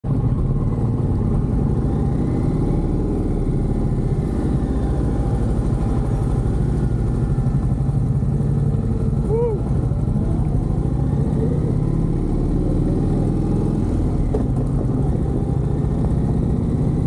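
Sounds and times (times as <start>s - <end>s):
motorcycle engine idling: 3.4s - 12.1s.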